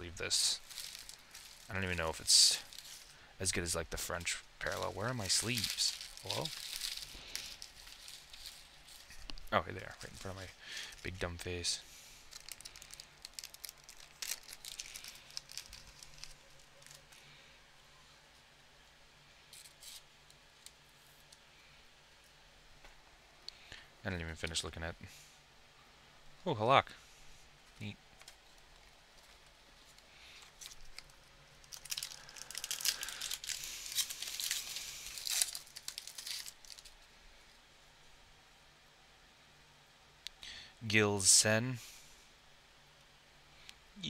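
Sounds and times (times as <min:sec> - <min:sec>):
plastic sleeves crinkling: 0:00.2 - 0:17.3, 0:27.7 - 0:37.6.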